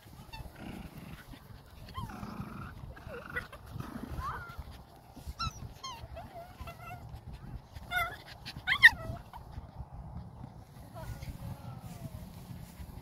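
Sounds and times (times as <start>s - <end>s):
puppies whining and yipping: 1.7s - 9.6s.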